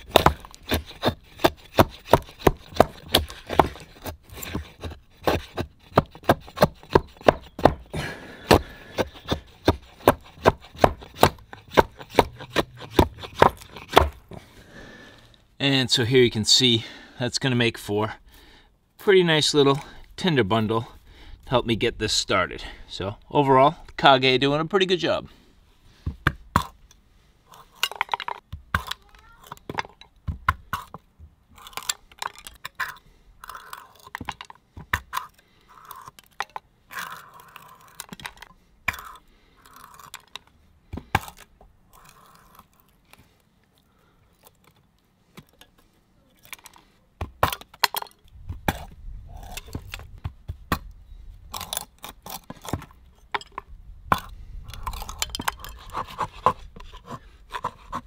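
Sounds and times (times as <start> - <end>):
wood splitting with clicks: 0.0 - 14.2, 46.5 - 50.9.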